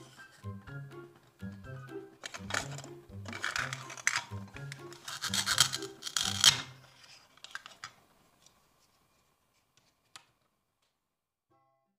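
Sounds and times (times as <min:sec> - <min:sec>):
hook-and-loop pads ripping apart: 0:05.0 - 0:07.9.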